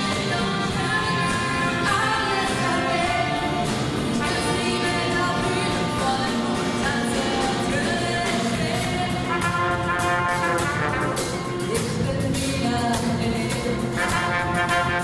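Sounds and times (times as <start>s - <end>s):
drum kit: 0.0s - 15.0s
electric guitar: 0.0s - 15.0s
women singing: 0.0s - 15.0s.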